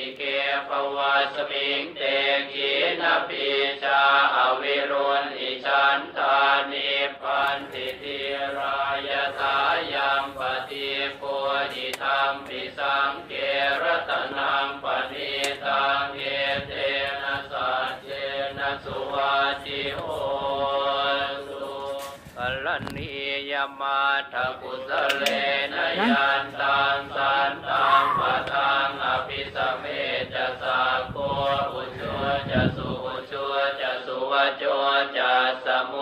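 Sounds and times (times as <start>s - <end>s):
chanting of pitched syllables: 23.4s - 36.0s.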